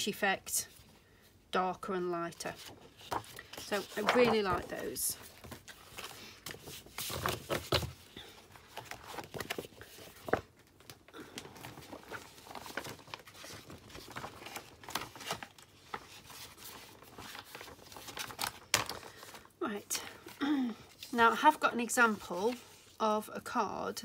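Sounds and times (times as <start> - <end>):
paper rustling: 2.4 - 19.6.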